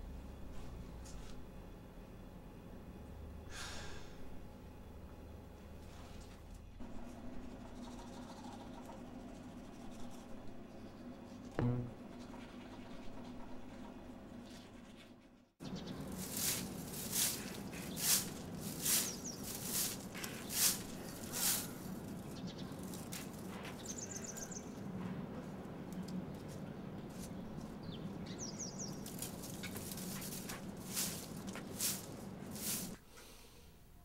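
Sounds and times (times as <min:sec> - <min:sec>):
broom sweeping leaves: 0:15.9 - 0:23.5, 0:28.8 - 0:33.0.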